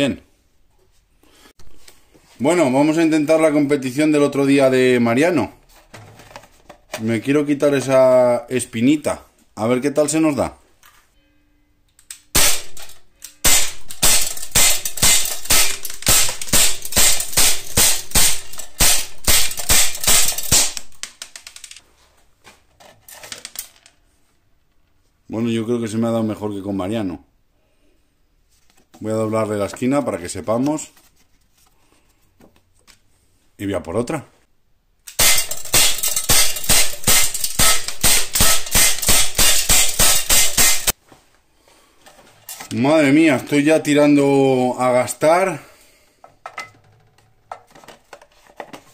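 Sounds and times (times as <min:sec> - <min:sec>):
bb pistol shots: 0:12.4 - 0:21.0, 0:35.1 - 0:40.9
bbs striking metal trap: 0:12.4 - 0:21.2, 0:35.1 - 0:40.9.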